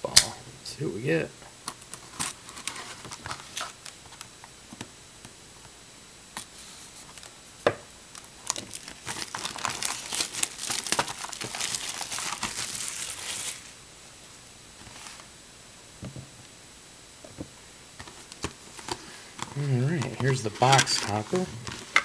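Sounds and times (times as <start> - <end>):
shrink wrap crinkling and tearing: 1.6 - 4.3, 8.1 - 13.8, 18.0 - 22.0.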